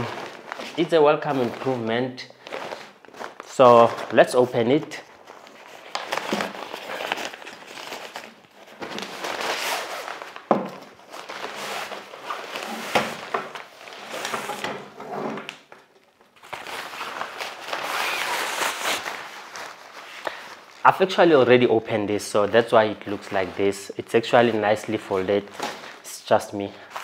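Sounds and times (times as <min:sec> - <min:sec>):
fabric rustling: 0:00.0 - 0:14.7, 0:16.4 - 0:21.1
nylon bag rustling: 0:00.0 - 0:14.7, 0:16.4 - 0:27.0.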